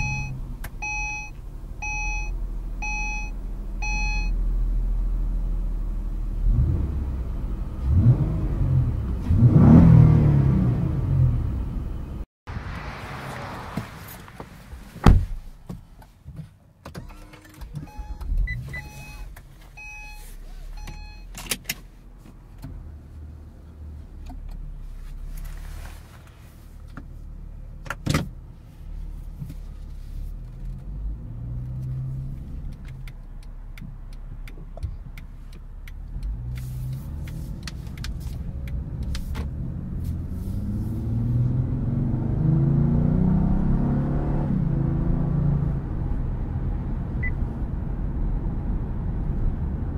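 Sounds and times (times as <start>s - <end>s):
dashboard chime beeping: 0.0s - 4.3s, 17.9s - 20.2s
car engine accelerating: 0.0s - 15.5s, 29.3s - 49.9s
car door shutting: 13.5s - 20.2s.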